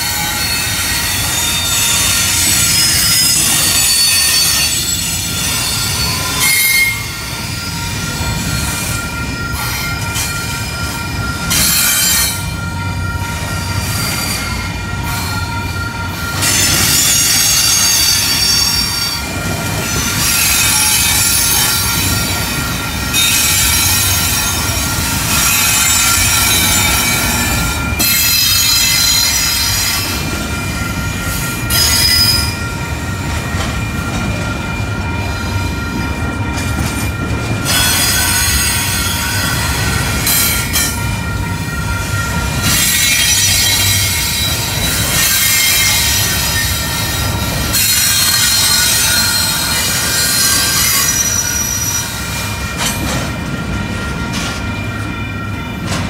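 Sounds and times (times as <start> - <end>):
high-pitched wheel squeal: 0.0 - 8.9, 31.7 - 32.7
train wheels rumbling on rail: 0.0 - 56.0.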